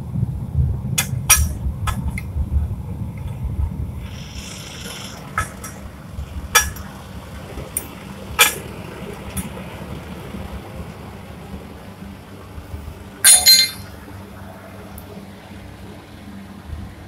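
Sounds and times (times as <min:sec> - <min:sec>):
furnace flame rumbling: 0:00.0 - 0:17.0
sharp metallic clinks: 0:13.2 - 0:13.9.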